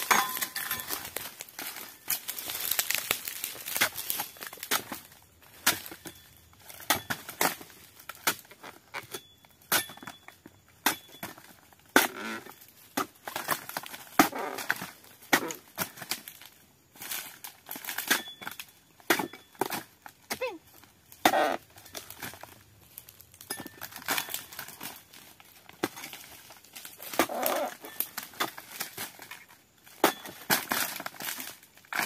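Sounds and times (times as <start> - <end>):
frond stalks crackling and tearing: 0.0 - 5.9, 20.7 - 32.0
chisel chopping palm fronds: 0.0 - 10.1, 10.8 - 22.6, 23.6 - 32.0.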